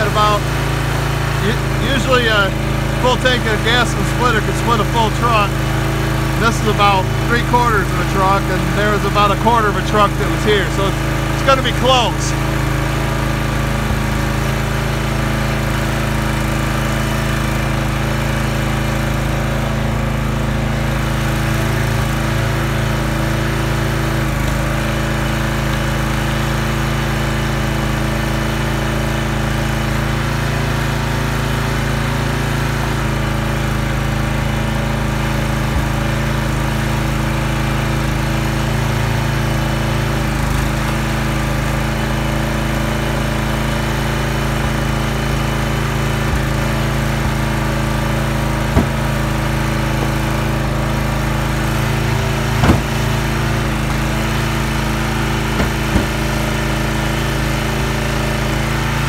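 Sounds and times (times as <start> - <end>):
small gas engine running: 0.0 - 59.0.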